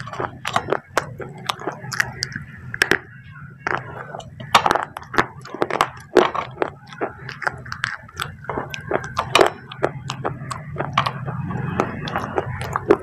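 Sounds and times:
crunchy chewing: 0.0 - 13.0.

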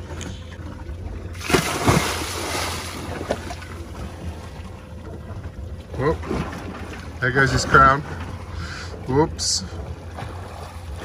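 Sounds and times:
churning water: 0.0 - 11.0
person splashing into water: 1.3 - 3.6.

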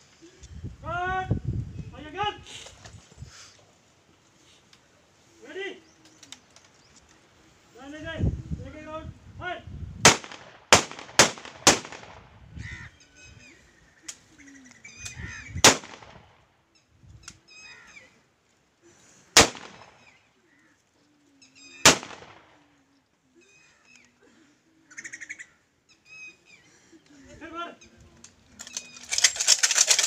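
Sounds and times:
rifle shots: 10.0 - 12.2, 15.6 - 16.2, 19.4 - 20.1, 21.8 - 22.6.

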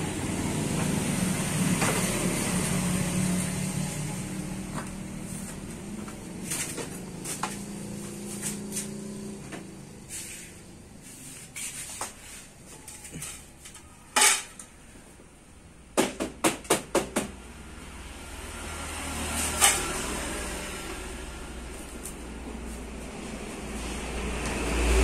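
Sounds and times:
metal tools clinking and tapping: 12.8 - 14.7.

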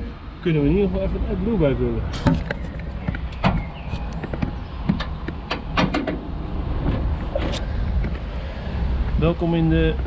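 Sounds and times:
steady low rumble: 0.0 - 10.0
sharp clicks and light knocks: 2.1 - 6.2.

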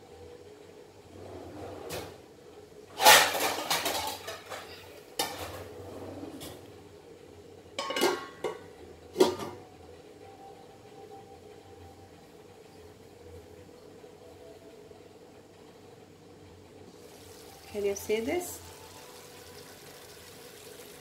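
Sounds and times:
pots and pans clattering: 3.0 - 5.8, 7.8 - 9.6.

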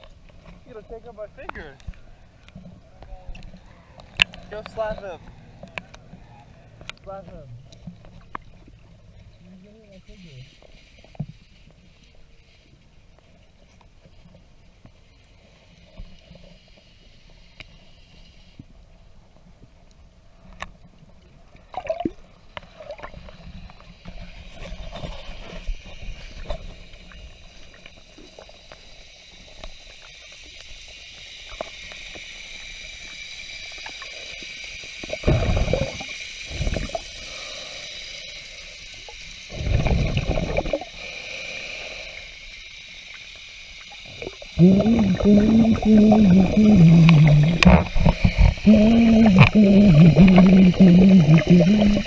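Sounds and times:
water gurgling and sloshing: 18.6 - 37.2, 39.0 - 41.0, 43.6 - 52.0
rush of water bubbles: 21.7 - 22.2, 35.1 - 37.0, 39.5 - 40.9, 44.0 - 52.0.

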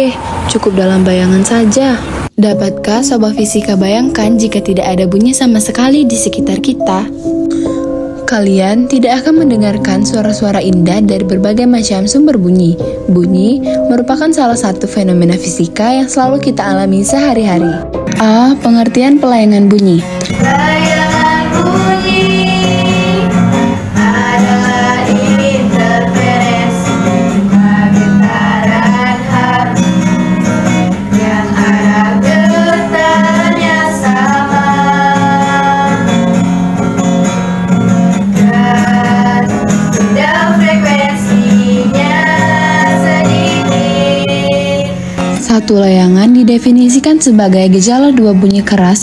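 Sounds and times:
acoustic guitar: 2.3 - 49.0
girls singing together: 20.3 - 36.4, 38.2 - 45.0.

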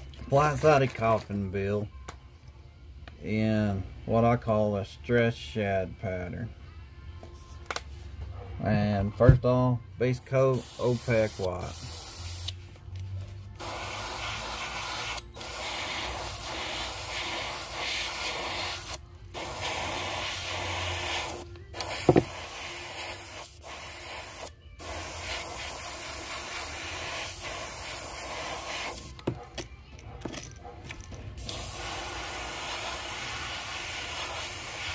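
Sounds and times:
airbrush spraying hiss: 10.5 - 12.6, 13.6 - 29.1, 31.4 - 34.9
short thump: 22.1 - 22.3.

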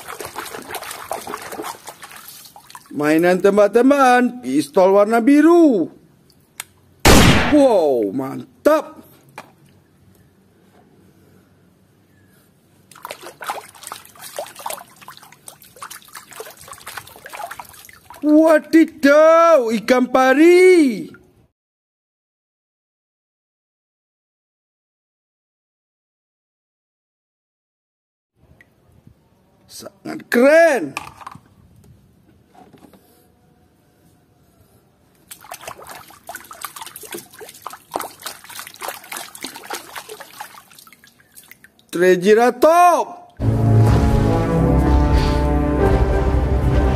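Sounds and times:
water splashing in a tub: 0.0 - 3.6, 12.9 - 18.6, 35.2 - 42.0.

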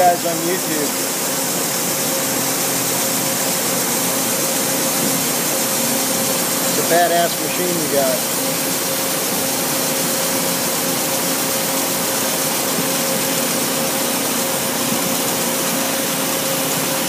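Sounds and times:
band saw cutting metal: 0.0 - 17.0.

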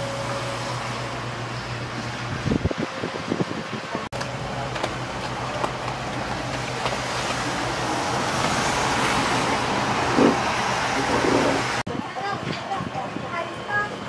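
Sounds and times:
rushing noise: 6.9 - 11.8.

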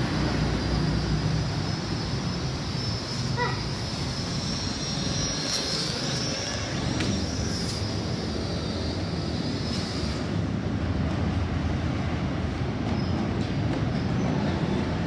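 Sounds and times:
toy drone propeller whine: 0.0 - 10.4.

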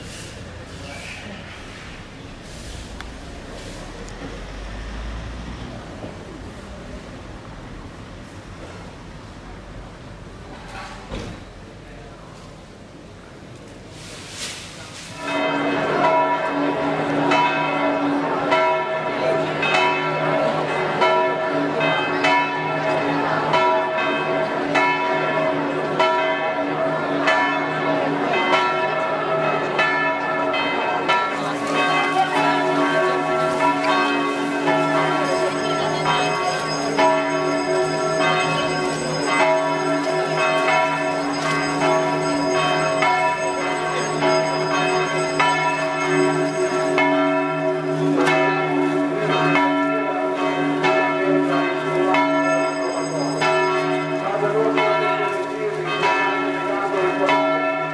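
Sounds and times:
church bell ringing: 15.1 - 57.9.

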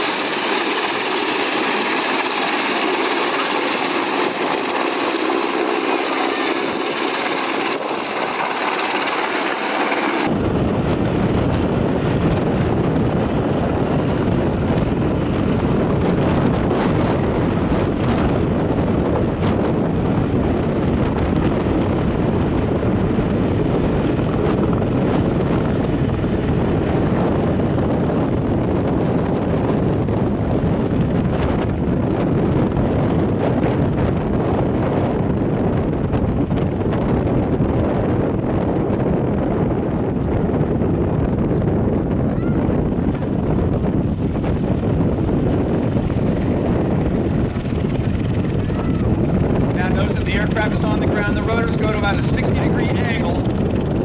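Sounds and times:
helicopter flying overhead: 0.0 - 54.0
tiltrotor aircraft flying low: 0.0 - 54.0.

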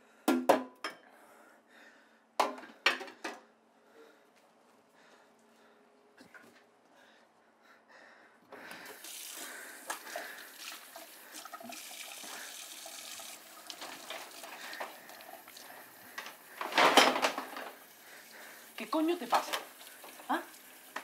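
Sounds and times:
tap water running into sink: 8.8 - 15.8, 17.7 - 21.0.

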